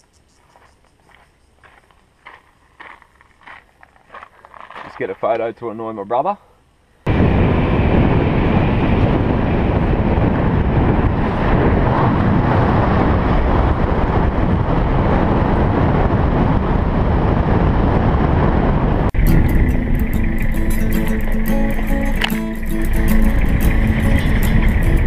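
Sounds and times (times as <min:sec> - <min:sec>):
wind buffeting microphone: 0:07.1 - 0:25.0
vehicle engine and road noise: 0:18.5 - 0:25.0
strummed acoustic guitar music: 0:19.1 - 0:25.0.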